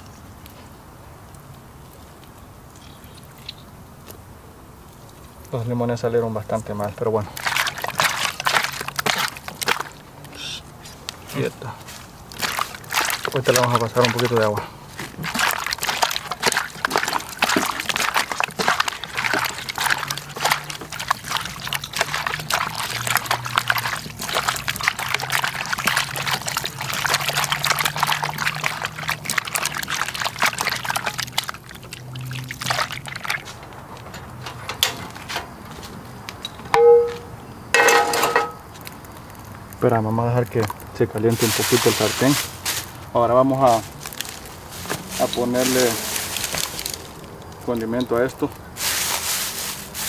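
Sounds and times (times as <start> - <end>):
water pouring and sloshing: 6.8 - 10.3, 11.2 - 35.7, 40.5 - 43.0, 43.6 - 50.0.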